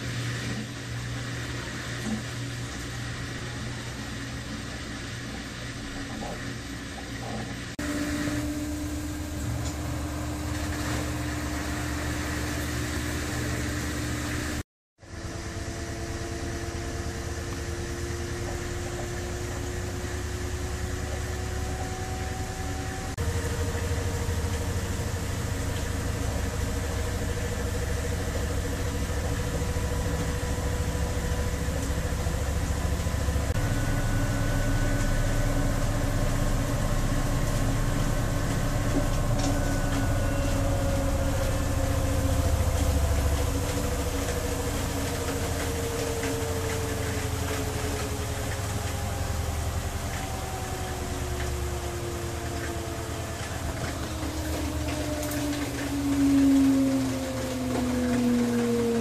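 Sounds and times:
washing machine spin cycle: 0.0 - 59.0.

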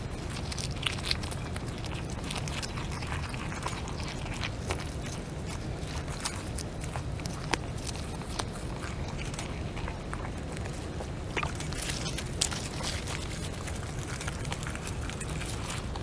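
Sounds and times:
beaver chewing twigs: 0.0 - 16.0
steady low rumble: 0.0 - 16.0.

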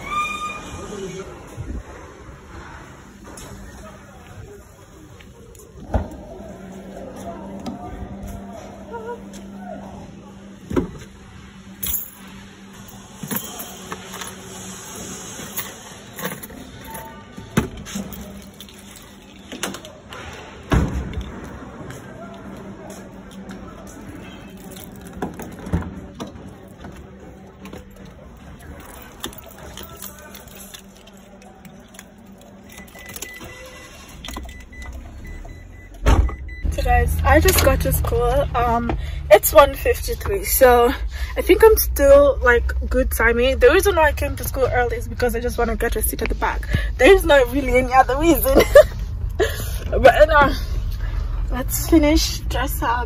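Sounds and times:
car engine low rumble: 1.2 - 53.0
low steady hum: 1.3 - 53.0
keys clinking: 11.8 - 14.6, 15.4 - 20.1, 23.3 - 25.7, 26.5 - 36.4.

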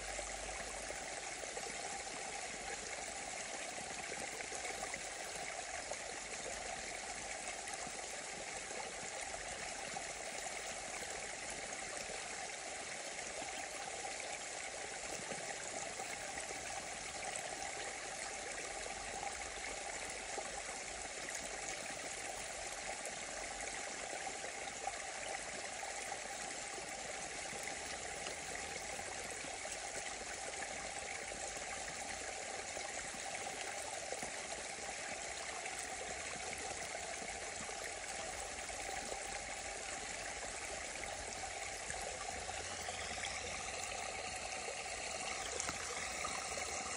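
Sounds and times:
stream splashing over stones: 27.2 - 46.9.

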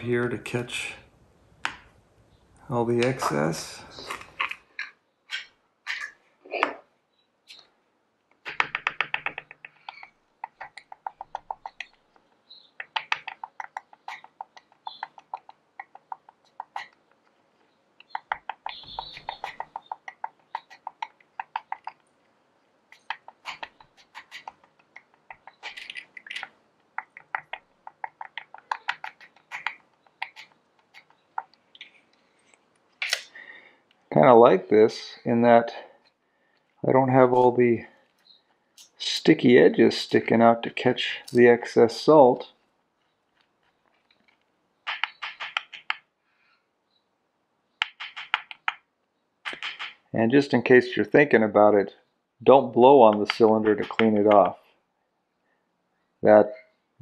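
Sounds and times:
cartridge tapping against tub: 8.4 - 17.0, 18.0 - 22.0, 23.0 - 31.6.

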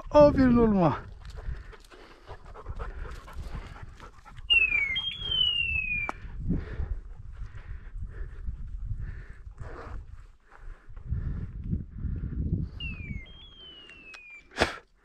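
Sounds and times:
dog panting: 1.2 - 5.1
high gliding whistle tones: 4.5 - 6.2, 12.8 - 14.5
footsteps on rocky ground: 9.5 - 12.2.

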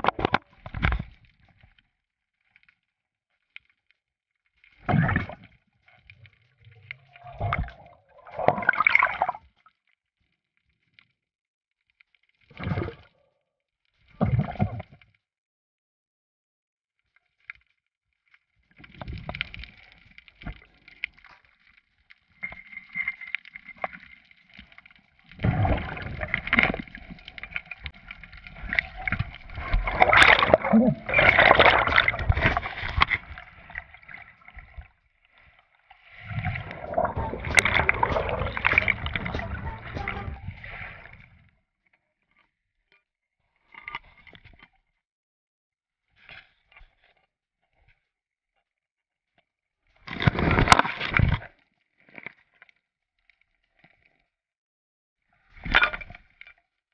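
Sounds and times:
muffled underwater sloshing: 22.3 - 41.3.

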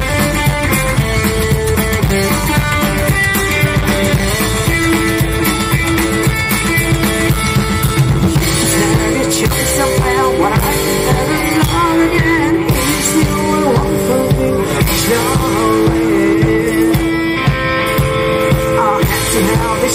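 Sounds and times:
upright double bass: 0.0 - 16.4
drum kit: 0.0 - 19.9
electric guitar: 0.0 - 19.9
person singing: 8.4 - 19.9.

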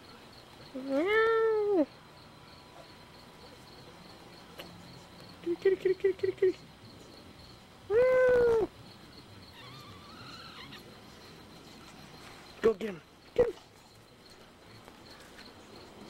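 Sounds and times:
cat yowling: 7.9 - 8.7, 9.5 - 10.9.

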